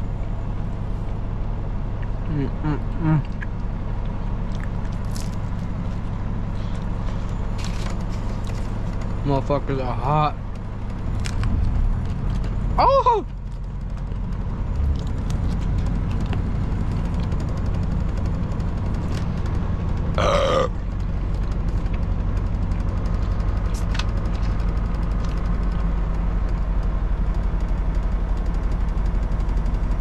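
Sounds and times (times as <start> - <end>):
diesel engine drone: 0.0 - 30.0
person burping: 2.3 - 3.4, 20.2 - 20.8.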